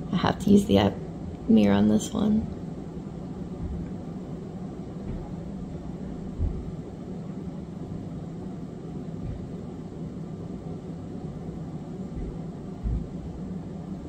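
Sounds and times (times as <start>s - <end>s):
low rumbling hum: 0.0s - 14.0s
low thumps: 2.4s - 7.1s, 9.1s - 9.8s, 12.0s - 13.6s.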